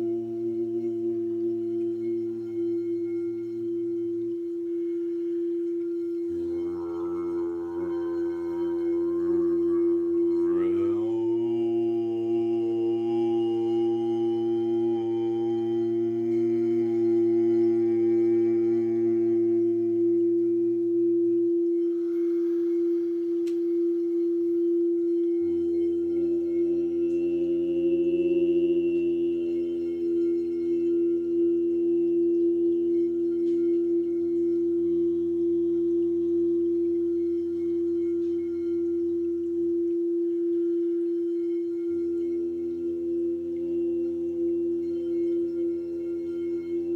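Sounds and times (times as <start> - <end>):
steady drone tone: 0.0 - 46.9
man chanting held notes: 9.7 - 11.8.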